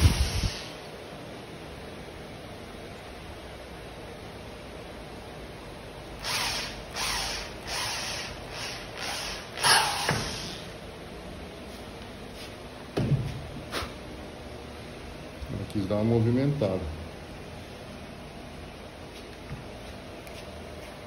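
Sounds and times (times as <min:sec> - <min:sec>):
cordless drill boring: 0:06.2 - 0:10.6.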